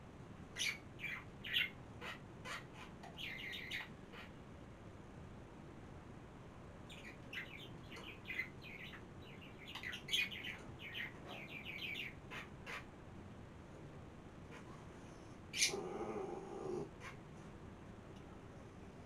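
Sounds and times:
small birds chirping: 0:00.5 - 0:04.4, 0:06.8 - 0:13.0, 0:15.4 - 0:17.2.

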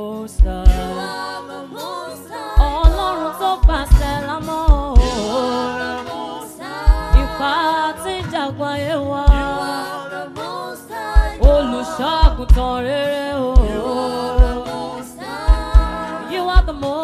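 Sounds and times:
woman singing gospel lead: 0:00.0 - 0:17.0
backing singers: 0:00.5 - 0:17.0
deep bass thumps: 0:02.6 - 0:05.4, 0:06.9 - 0:07.4, 0:11.2 - 0:12.8, 0:13.6 - 0:14.7, 0:15.5 - 0:16.8.

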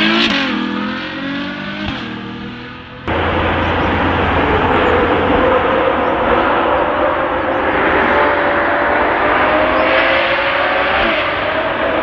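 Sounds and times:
sports car engine driving away: 0:00.0 - 0:12.0
steady rushing noise: 0:02.9 - 0:12.0.

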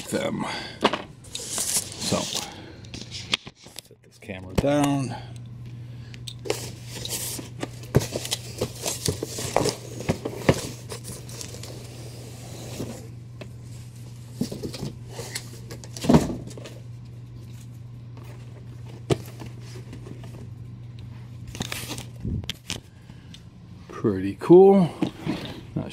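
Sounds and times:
steady low hum: 0:00.0 - 0:25.9
cardboard rustling and scraping: 0:01.3 - 0:03.7, 0:06.4 - 0:16.8.

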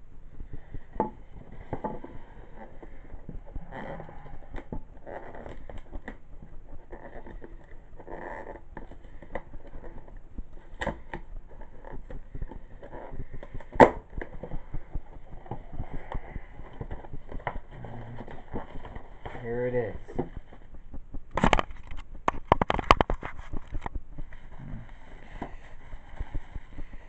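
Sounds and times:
small clicks and crackles: 0:00.0 - 0:27.0
cardboard rustling and scraping: 0:06.8 - 0:27.0.

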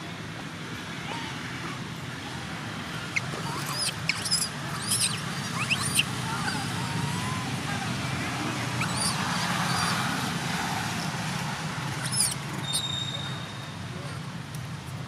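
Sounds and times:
young monkey squeaking: 0:03.0 - 0:07.6, 0:08.2 - 0:11.2, 0:11.8 - 0:13.6.

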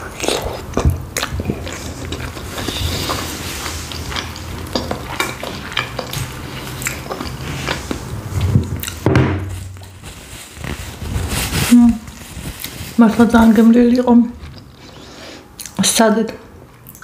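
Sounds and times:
close chewing mouth sounds: 0:00.0 - 0:09.0.

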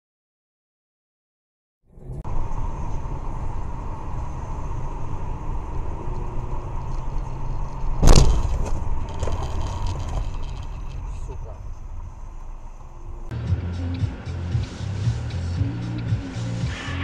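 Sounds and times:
car road and engine rumble: 0:01.9 - 0:17.0
loud thump: 0:08.0 - 0:09.4.

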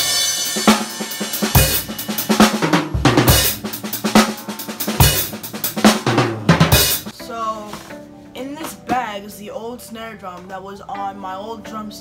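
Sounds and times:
cymbals ringing: 0:00.0 - 0:07.1
drum kit playing: 0:00.0 - 0:08.0.

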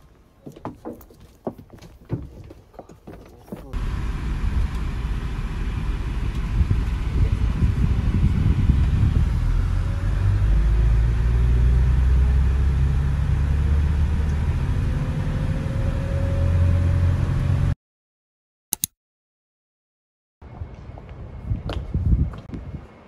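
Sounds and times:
vehicle rumbling in motion: 0:03.6 - 0:17.8
short click: 0:18.7 - 0:18.9.

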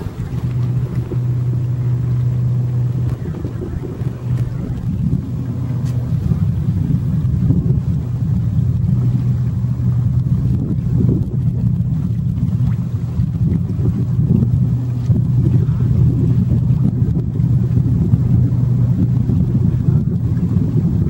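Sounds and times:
wind rushing: 0:00.0 - 0:09.8
low engine drone: 0:00.0 - 0:21.0.

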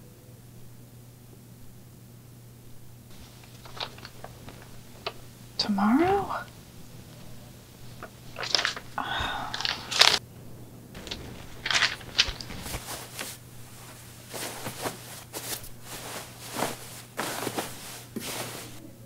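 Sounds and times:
low steady hum: 0:00.0 - 0:19.0
clothes on hangers rustling: 0:03.1 - 0:10.2, 0:11.0 - 0:19.0.

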